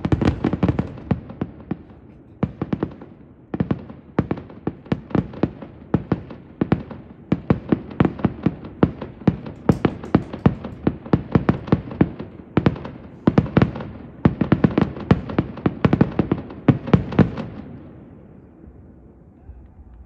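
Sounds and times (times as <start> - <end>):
fireworks bangs: 0.0 - 18.3.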